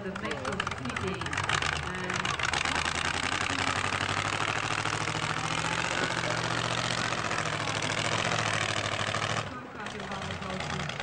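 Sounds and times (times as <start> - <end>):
monster truck engine running: 0.0 - 11.0.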